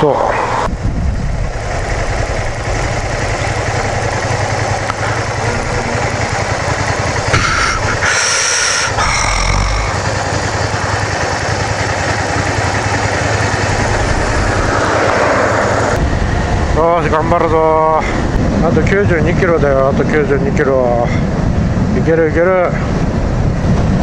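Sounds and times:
road and wind noise: 0:00.0 - 0:24.0
motorcycle engine running: 0:00.7 - 0:16.8.

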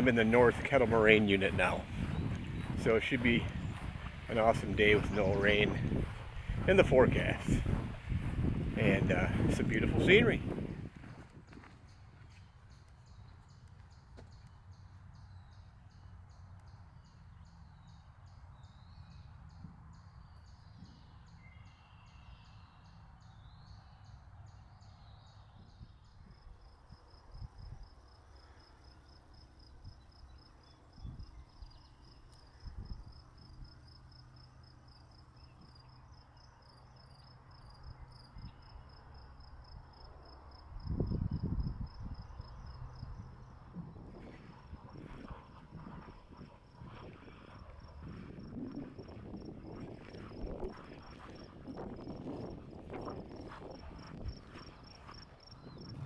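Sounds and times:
bird chirps: 0:00.0 - 0:07.5, 0:11.0 - 0:26.3
low rumble: 0:00.0 - 0:11.0
wind rumble on microphone: 0:00.0 - 0:13.6, 0:16.3 - 0:28.0, 0:29.6 - 0:34.0, 0:37.6 - 0:38.8, 0:39.6 - 0:56.0
insect trill: 0:44.6 - 0:56.0.

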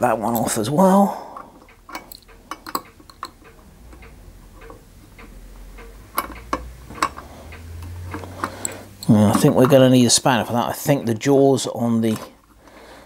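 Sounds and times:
spanner clicking on metal: 0:01.4 - 0:10.0.

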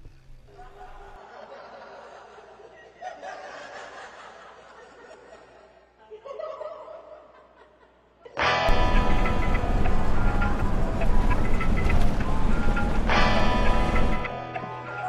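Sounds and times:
people chuckling and laughing: 0:00.5 - 0:09.3
loud music: 0:08.4 - 0:15.0.

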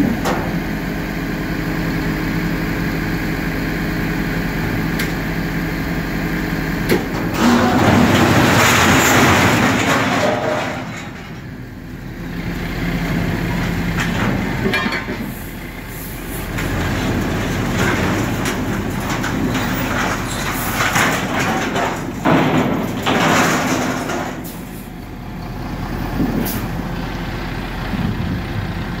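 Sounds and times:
truck engine running: 0:00.0 - 0:29.0
scrap metal sliding and clattering: 0:06.9 - 0:11.6, 0:13.8 - 0:24.9.

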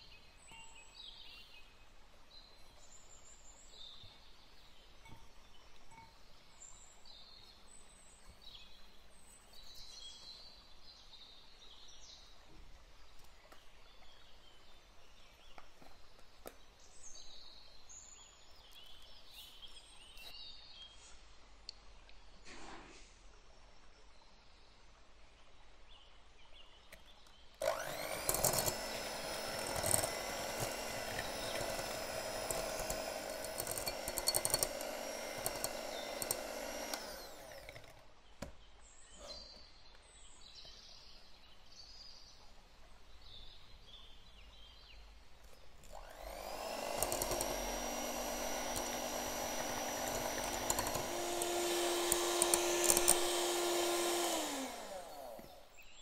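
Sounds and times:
electric hand mixer running: 0:27.6 - 0:38.0, 0:45.9 - 0:55.7.

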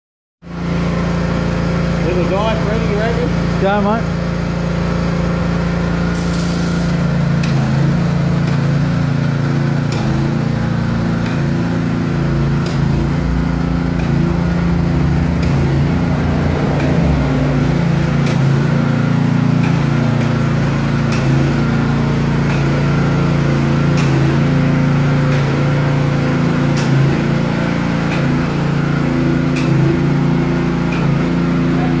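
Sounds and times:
small petrol engine running: 0:00.5 - 0:32.0.

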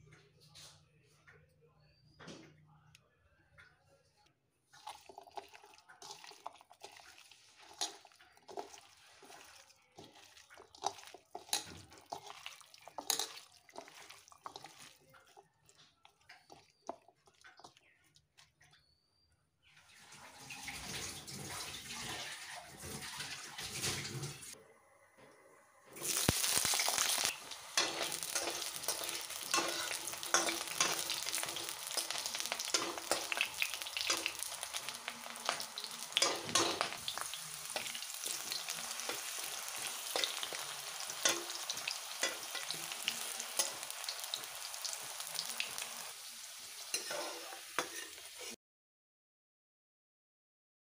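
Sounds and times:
hand mixing food in plastic bowl: 0:04.7 - 0:18.9
wooden spatula stirring: 0:04.7 - 0:18.9, 0:26.8 - 0:44.1, 0:46.9 - 0:48.6
potato slices sizzling in oil: 0:04.8 - 0:18.0, 0:25.9 - 0:48.6.

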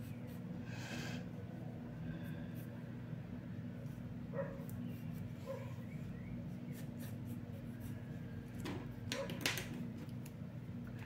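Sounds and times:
low hum: 0:00.0 - 0:09.0
pencil scratching on paper: 0:06.7 - 0:08.2.

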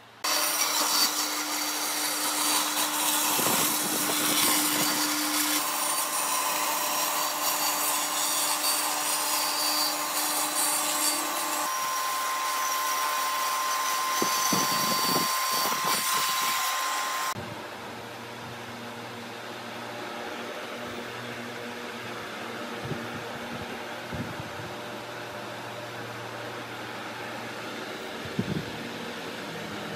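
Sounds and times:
band saw cutting wood: 0:00.2 - 0:17.4.

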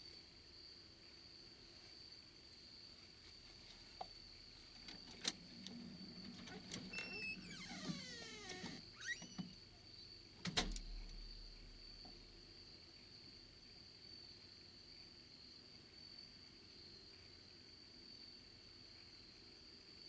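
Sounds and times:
insects chirring: 0:00.0 - 0:20.0
glass storm door shutting: 0:05.1 - 0:09.6, 0:10.4 - 0:11.2
door latch click: 0:10.4 - 0:11.2.

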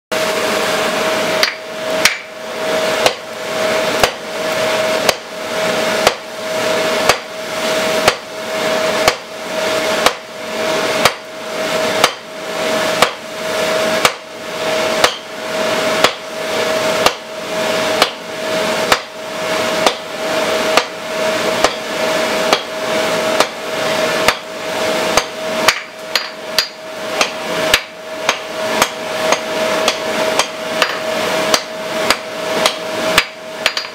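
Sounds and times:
hammer striking hot steel: 0:01.4 - 0:02.4, 0:03.0 - 0:03.3, 0:04.0 - 0:05.4, 0:06.0 - 0:06.3, 0:07.0 - 0:07.4, 0:08.0 - 0:08.3, 0:09.0 - 0:09.3, 0:10.0 - 0:10.3, 0:11.0 - 0:11.3, 0:12.0 - 0:12.3, 0:13.0 - 0:13.3, 0:14.0 - 0:14.3, 0:15.0 - 0:15.3, 0:16.0 - 0:16.3, 0:17.0 - 0:17.3, 0:18.0 - 0:18.2, 0:18.8 - 0:19.2, 0:19.8 - 0:20.1, 0:20.7 - 0:21.0, 0:21.6 - 0:21.9, 0:22.5 - 0:23.6, 0:24.2 - 0:24.5, 0:25.1 - 0:33.9.

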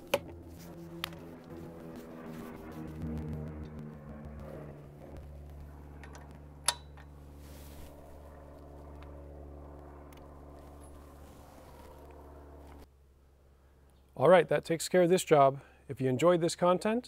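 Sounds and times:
steady low hum: 0:00.0 - 0:14.2.

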